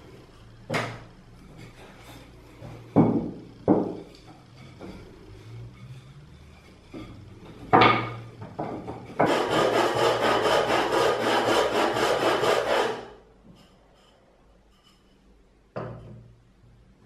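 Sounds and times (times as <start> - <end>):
wood knock: 3.0 - 4.0
stick scratching on sandpaper: 9.2 - 13.1.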